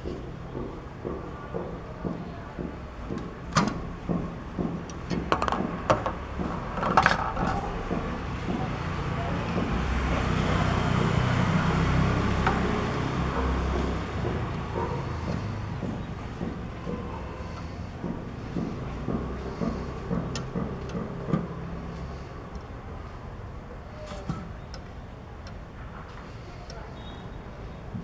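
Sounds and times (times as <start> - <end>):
metal parts clicking and knocking: 4.8 - 7.9
ball rolling down metal track: 5.2 - 7.8.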